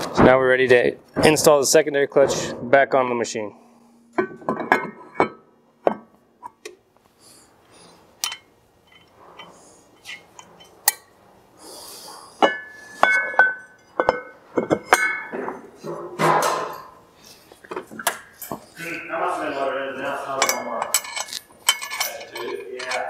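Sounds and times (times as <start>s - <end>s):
ringing metal clanks: 3.2s - 6.7s, 12.4s - 17.0s, 20.4s - 23.0s
metal clinks and knocks: 3.6s - 6.8s, 8.2s - 11.1s, 12.4s - 16.9s, 20.4s - 23.0s.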